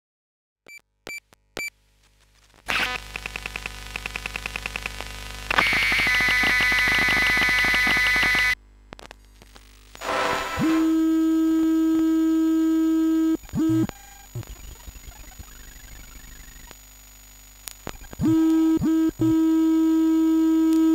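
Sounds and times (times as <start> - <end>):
steady electrical hum: 1.3 - 20.9
rapid electromagnetic ticking pulses: 2.7 - 8.6, 9.6 - 20.9
dense buzzing tone: 2.7 - 20.9
noisy burst: 10.0 - 11.3.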